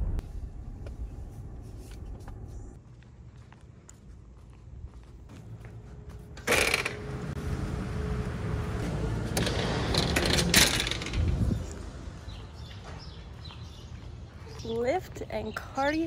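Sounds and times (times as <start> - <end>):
door hardware clicks and clanks: 9.4 - 11.6.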